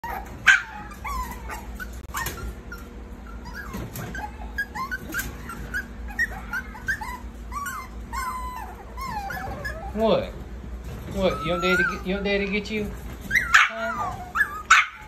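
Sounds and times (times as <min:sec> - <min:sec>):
puppy yip: 0:00.0 - 0:10.0, 0:13.3 - 0:15.0
puppies whining and whimpering: 0:00.0 - 0:15.0.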